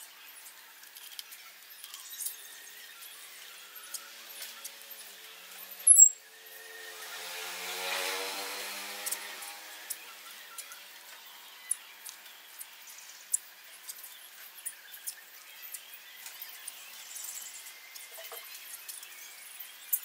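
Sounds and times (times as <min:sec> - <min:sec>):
motor-like hum: 0:02.4 - 0:18.8
sharp high clicks and chirps: 0:05.9 - 0:06.2, 0:11.6 - 0:19.2.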